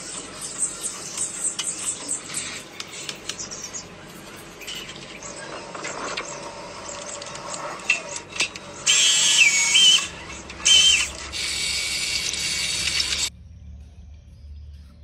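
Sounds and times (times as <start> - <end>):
small electric motor whirring: 6.2 - 13.3.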